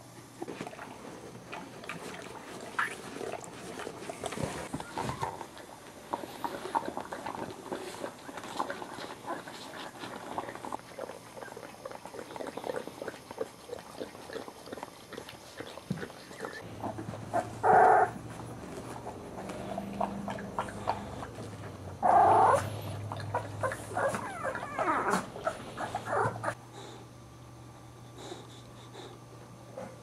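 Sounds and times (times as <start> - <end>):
dog yelping: 16.8 - 18.2, 22.0 - 26.6
dogs mouthing wet clicks: 19.4 - 21.8.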